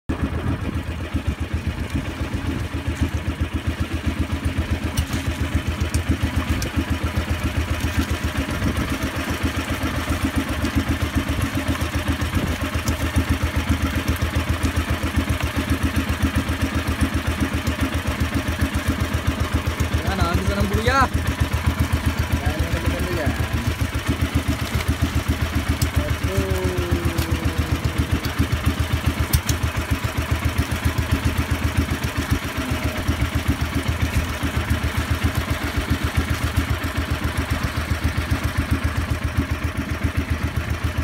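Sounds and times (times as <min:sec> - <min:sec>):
boat engine pulsing: 0:00.1 - 0:41.0
water splashing on hull: 0:00.1 - 0:41.0.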